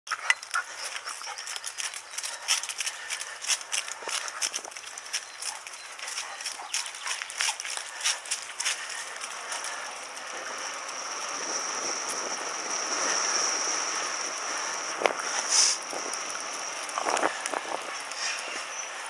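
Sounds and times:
bicycle tyres rushing hiss: 0:07.3 - 0:19.0
high whine: 0:08.2 - 0:19.0.

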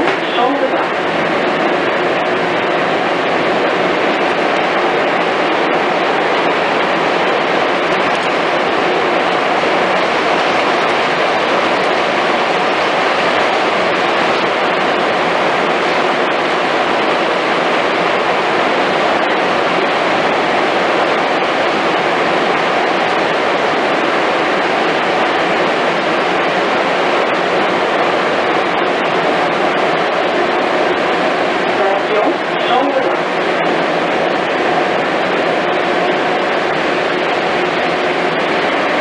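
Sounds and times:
train rushing through tunnel: 0:00.0 - 0:39.0.

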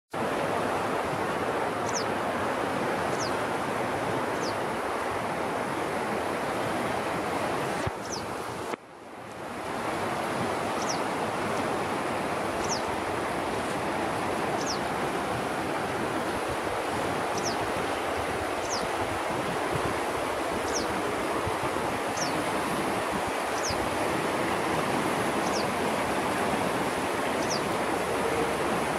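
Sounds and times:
water rushing over rocks: 0:09.4 - 0:28.9.

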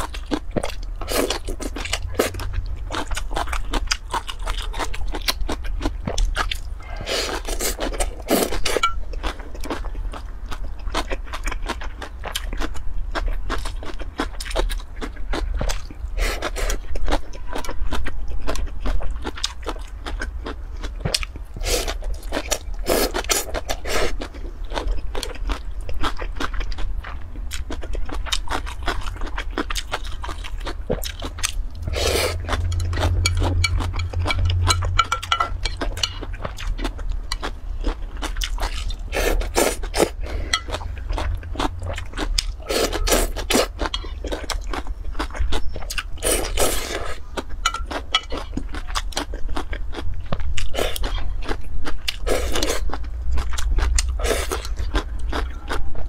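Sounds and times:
slurping and chewing food: 0:00.0 - 0:56.0
chopsticks scraping glass bowl: 0:31.9 - 0:36.3.

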